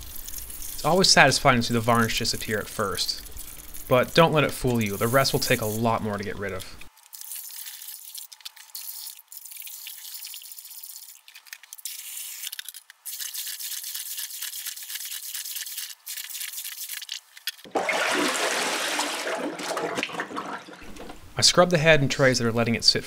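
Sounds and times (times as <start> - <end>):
brush scrubbing metal in water: 13.1 - 17.1.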